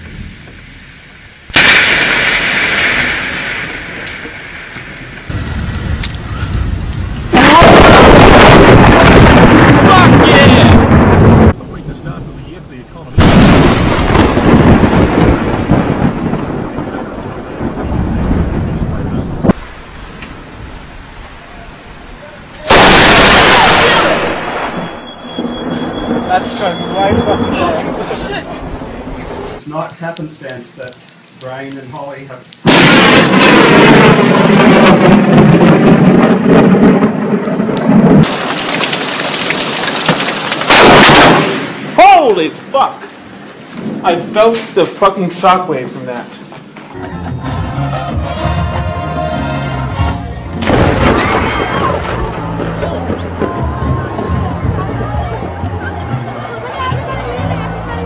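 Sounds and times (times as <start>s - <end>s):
rain: 0.0s - 44.8s, 50.3s - 58.0s
thunder crack and rumble: 1.5s - 21.4s, 22.6s - 29.4s, 32.6s - 42.0s, 50.6s - 55.6s.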